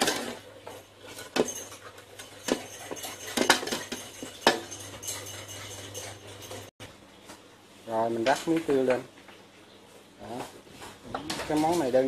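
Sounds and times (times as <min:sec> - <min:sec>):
metal ladle clinking against wok: 0:01.1 - 0:06.7.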